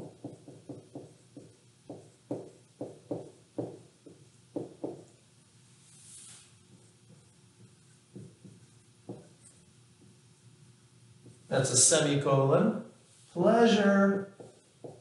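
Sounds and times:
marker writing on whiteboard: 0.0s - 5.2s, 6.2s - 10.2s, 14.2s - 15.0s.

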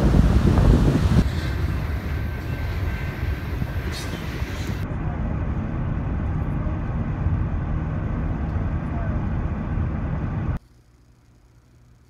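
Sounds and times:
freight train rumbling on rails: 0.0s - 10.6s
car road rumble: 4.6s - 10.6s.

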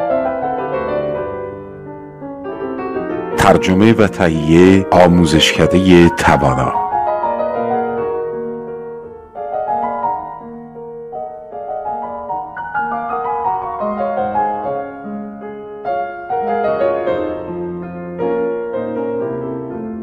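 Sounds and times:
slow piano music: 0.0s - 20.0s.

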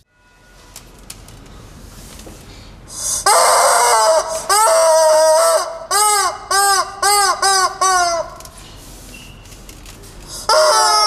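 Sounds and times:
rubber chicken toy squawking: 3.0s - 8.6s, 10.4s - 11.0s.

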